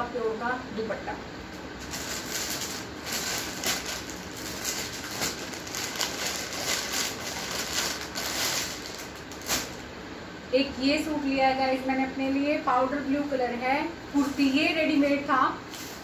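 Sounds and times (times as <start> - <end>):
clothes and packaging crinkling: 1.6 - 9.9.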